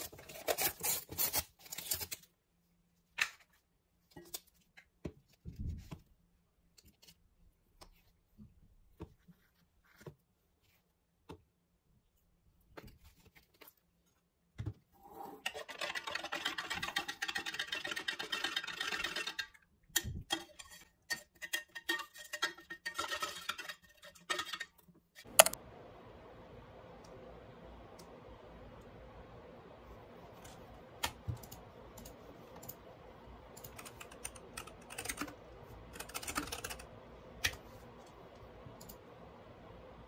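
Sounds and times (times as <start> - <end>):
drink shaken in metal tumbler: 15.5 - 19.5.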